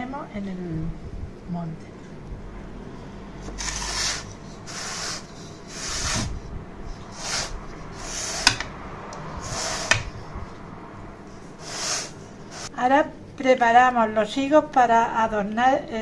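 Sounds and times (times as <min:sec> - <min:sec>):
spatula scraping batter: 0:03.6 - 0:08.8.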